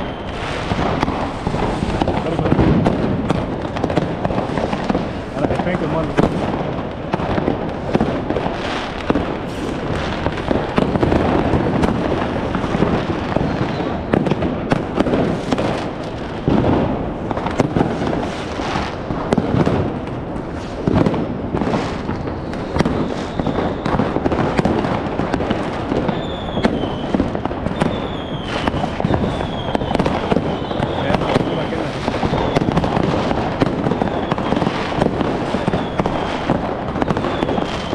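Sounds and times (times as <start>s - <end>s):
falling firework whistles: 0.0s - 3.0s, 8.6s - 11.7s, 12.5s - 15.8s, 20.5s - 25.0s, 25.9s - 37.9s
fireworks and firecrackers bangs: 0.0s - 37.9s.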